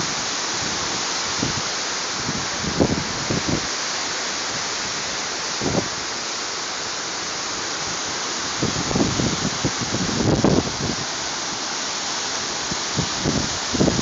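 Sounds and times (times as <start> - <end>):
strong wind rushing: 8.6 - 11.1, 13.0 - 14.0
wind buffeting microphone: 8.6 - 11.2, 12.9 - 14.0.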